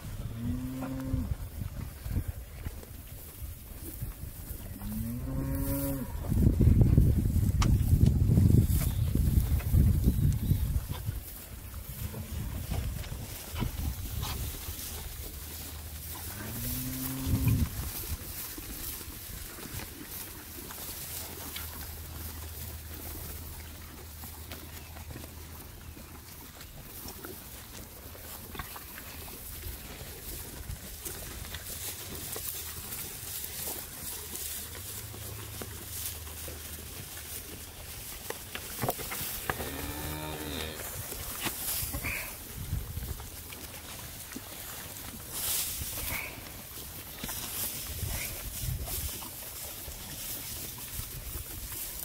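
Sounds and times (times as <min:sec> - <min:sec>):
cow mooing: 0:00.2 - 0:01.4, 0:04.8 - 0:06.3, 0:16.2 - 0:17.7, 0:39.5 - 0:41.0.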